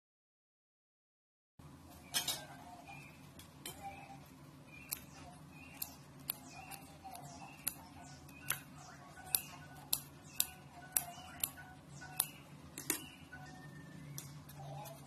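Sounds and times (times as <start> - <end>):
scissors snipping: 4.8 - 13.0
soft background music: 5.8 - 15.0.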